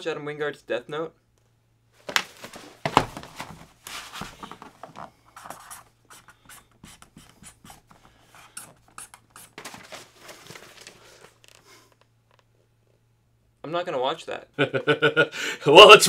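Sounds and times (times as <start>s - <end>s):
pen scratching on paper: 5.4s - 9.6s.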